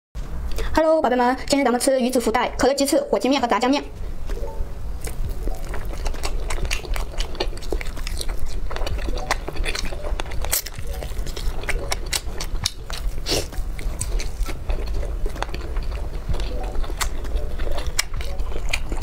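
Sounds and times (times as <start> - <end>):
steady low hum: 0.2 - 19.0
mouth chewing clicks and smacks: 5.0 - 19.0.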